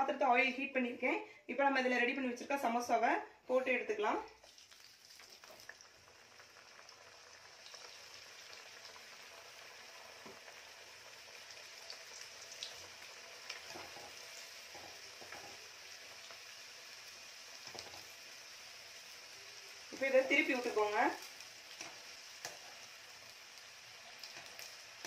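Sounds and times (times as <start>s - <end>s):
oil sizzling: 3.9s - 25.0s
small crackles: 4.4s - 7.0s, 17.6s - 18.2s, 20.6s - 25.0s.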